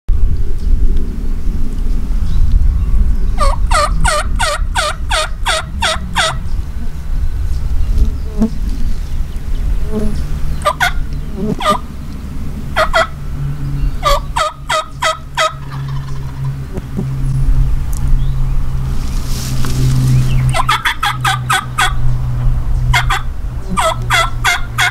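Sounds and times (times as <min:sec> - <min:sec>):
steady low rumble: 0:00.1 - 0:24.9
turkey yelping: 0:03.4 - 0:06.4, 0:10.6 - 0:11.9, 0:12.8 - 0:13.2, 0:14.0 - 0:16.4, 0:20.5 - 0:22.0, 0:22.9 - 0:24.9.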